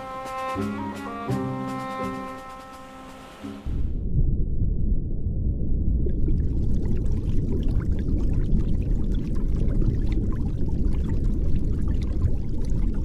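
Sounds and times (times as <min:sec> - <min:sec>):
deep low rumble: 0:03.6 - 0:13.0
underwater bubbles fizzing: 0:06.1 - 0:13.0.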